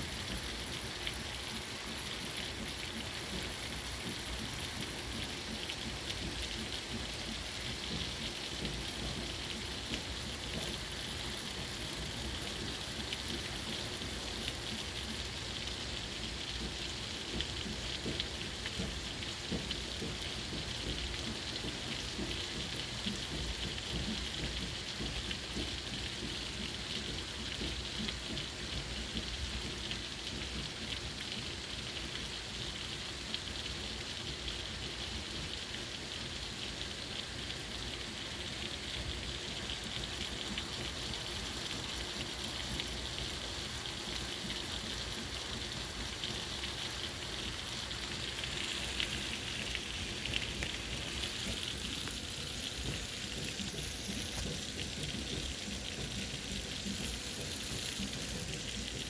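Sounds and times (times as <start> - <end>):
heavy rain pouring: 0.0 - 59.0.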